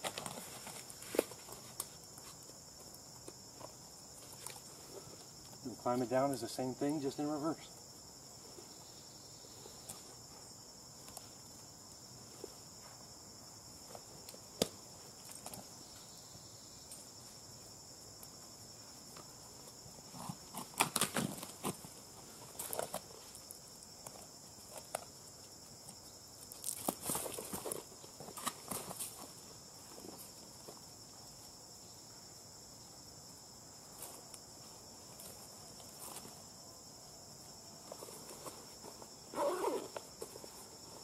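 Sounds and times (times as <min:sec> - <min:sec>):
high insect drone: 0:00.0 - 0:41.0.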